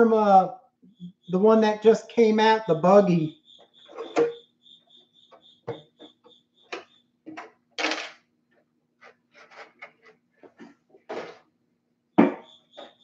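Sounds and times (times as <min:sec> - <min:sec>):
cricket chirping: 0:00.0 - 0:07.9, 0:12.1 - 0:13.0.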